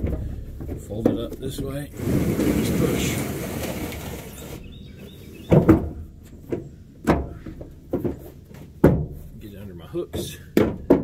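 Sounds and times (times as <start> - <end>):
rubber mat scraping: 1.9 - 5.3.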